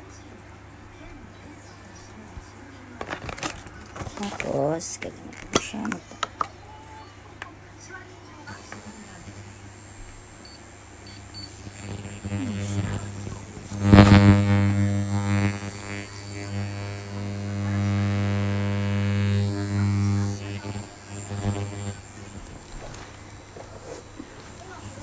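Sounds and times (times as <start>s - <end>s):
ultrasonic skin scrubber buzzing: 8.5s - 25.0s.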